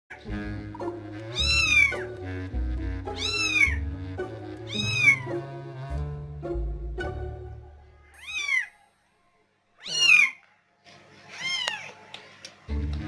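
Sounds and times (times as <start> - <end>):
background music: 0.1 - 8.0, 12.6 - 13.0
kitten mewing: 1.4 - 2.0, 3.2 - 3.8, 4.7 - 5.3, 8.0 - 8.7, 9.8 - 10.4.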